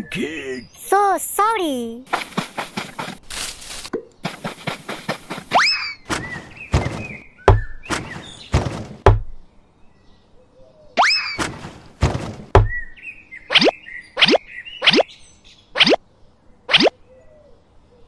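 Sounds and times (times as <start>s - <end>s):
sharp knocks and hollow thunks: 4.0s - 9.5s, 11.4s - 12.9s
heavy low thud: 6.1s - 9.4s, 11.4s - 12.8s.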